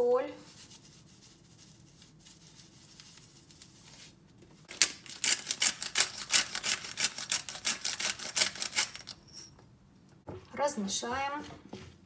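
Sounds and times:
pepper mill grinding: 4.7s - 9.2s.

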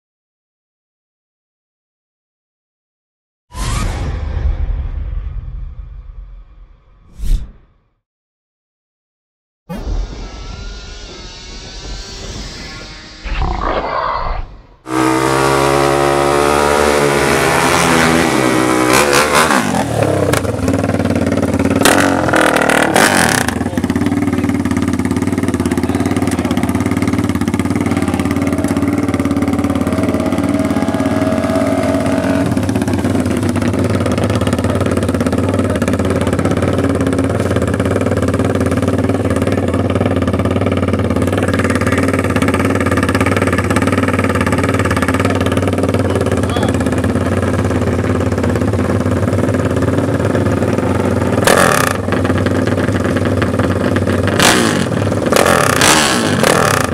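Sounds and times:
dirt bike engine revving: 13.2s - 56.9s.

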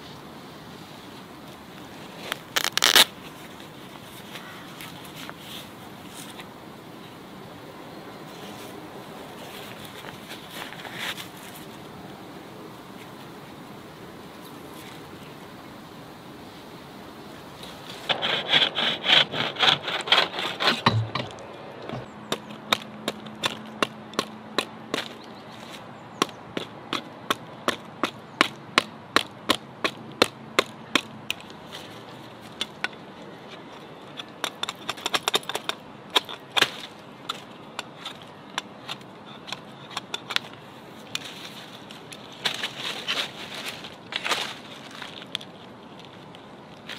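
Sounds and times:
knife sawing dry wood: 17.9s - 21.0s
knife chopping dry wood: 18.1s - 25.2s, 26.2s - 31.1s.

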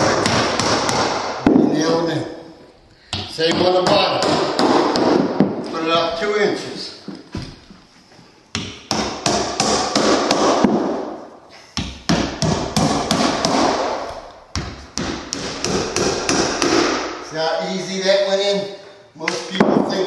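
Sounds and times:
hammer driving nails: 0.0s - 1.7s, 3.1s - 5.7s, 8.5s - 11.1s, 11.8s - 17.1s.

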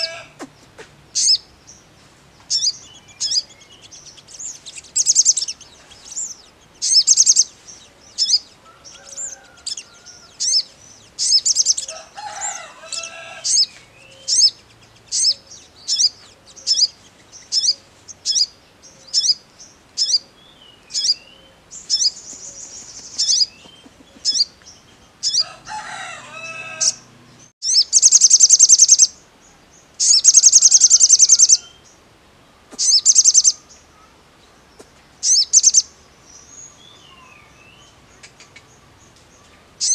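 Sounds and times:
fainter lower bird call: 0.0s - 1.5s, 2.4s - 32.0s, 32.7s - 34.2s, 35.2s - 39.9s
bird chips and trills: 1.1s - 1.5s, 2.5s - 25.5s, 27.6s - 29.2s, 30.0s - 31.8s, 32.8s - 33.7s, 35.2s - 35.9s.

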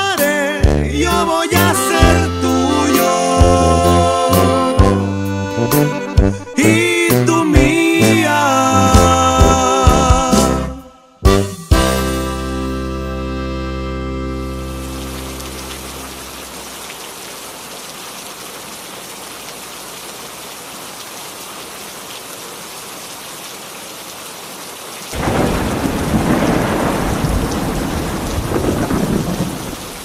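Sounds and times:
steady rain falling: 14.4s - 30.0s
thunder rumbling: 25.2s - 30.0s.

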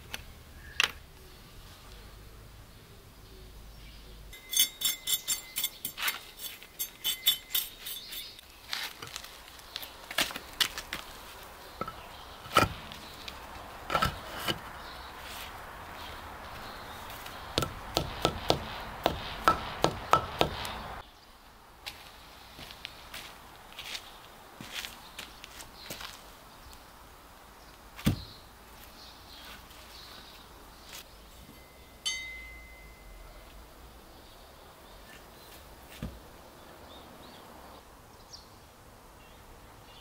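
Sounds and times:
gravel scraping: 7.5s - 21.0s
stone knocking on stone: 17.6s - 20.8s.

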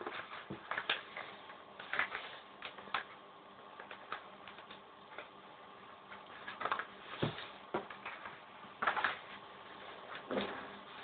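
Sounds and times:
paper crinkling and creasing: 0.0s - 3.1s
faint steady hum: 0.0s - 11.0s.

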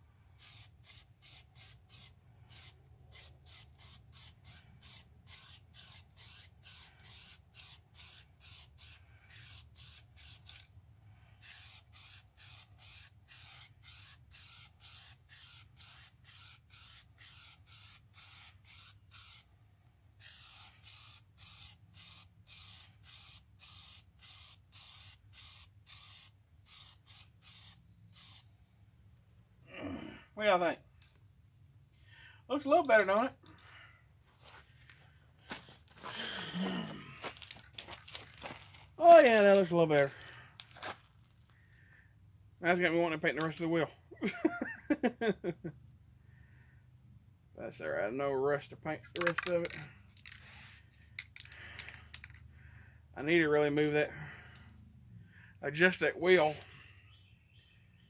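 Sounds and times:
spray can hissing: 0.4s - 10.7s, 11.4s - 19.5s, 20.2s - 28.5s.

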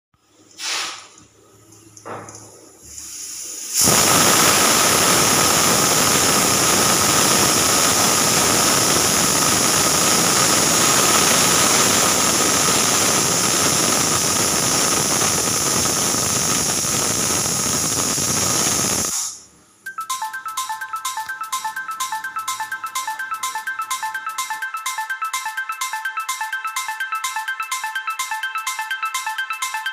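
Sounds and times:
pressure cooker hissing whistle: 3.0s - 19.4s.

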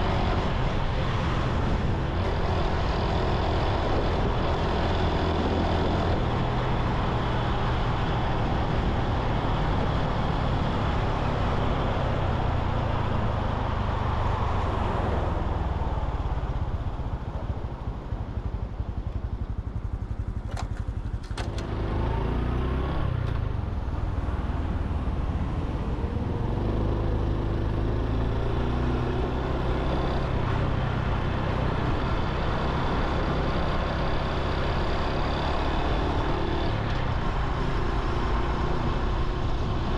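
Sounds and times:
motorcycle engine running: 16.2s - 39.9s.

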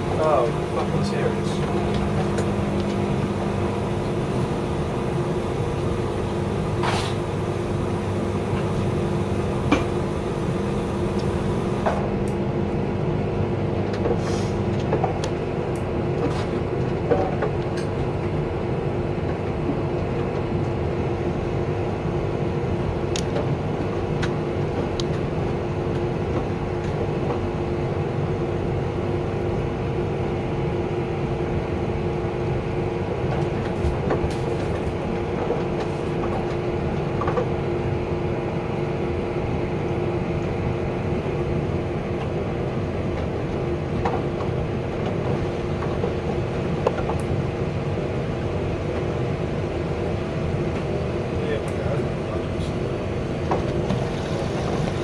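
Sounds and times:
lower hum: 0.0s - 13.6s
washing machine motor hum: 0.0s - 14.0s, 15.1s - 55.0s.

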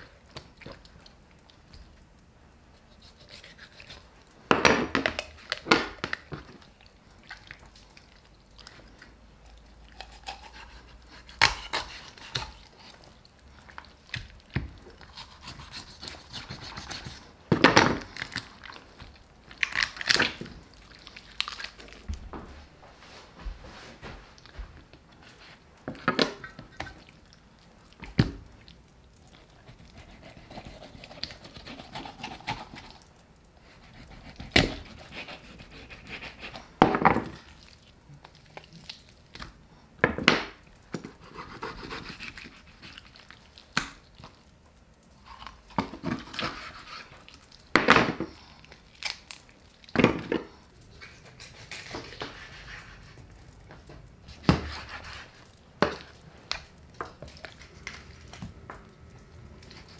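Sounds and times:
soft rustling and rubbing: 22.0s - 25.8s.

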